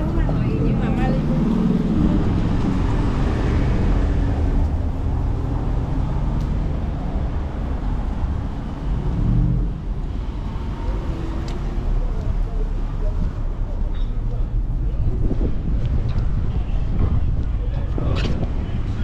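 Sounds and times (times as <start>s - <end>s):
cars driving by: 0.0s - 19.0s.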